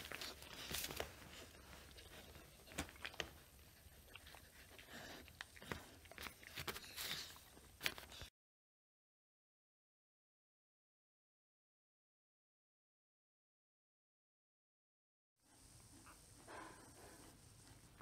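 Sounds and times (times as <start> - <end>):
dog licking and nibbling: 0.0 - 8.3.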